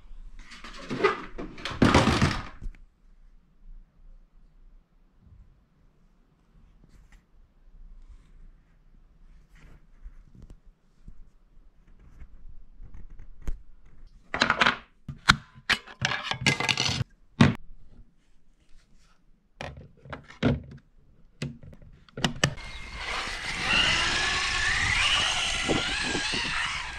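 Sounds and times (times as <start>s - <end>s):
electric motor whining: 22.6s - 26.9s.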